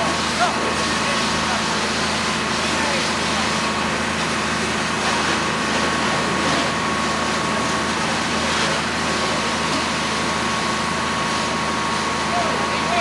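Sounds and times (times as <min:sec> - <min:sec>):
fire hose spraying water: 0:00.0 - 0:13.0
pump engine droning: 0:00.0 - 0:13.0.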